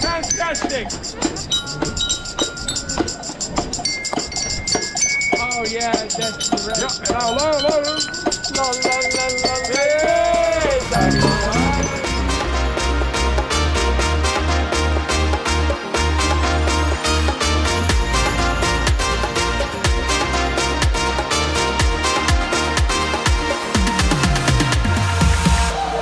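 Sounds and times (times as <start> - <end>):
upbeat music: 5.4 - 25.8
deep bass beat: 10.7 - 13.9.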